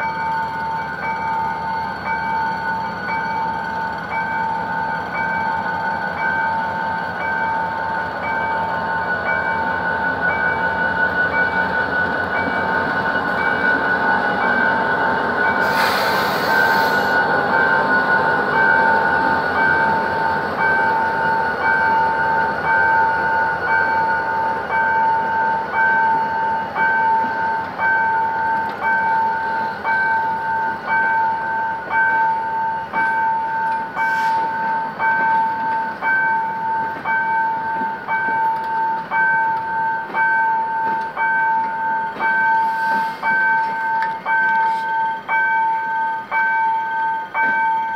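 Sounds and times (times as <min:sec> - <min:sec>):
train coaches rumbling past: 0:00.0 - 0:47.9
level crossing bell ringing: 0:17.5 - 0:47.9.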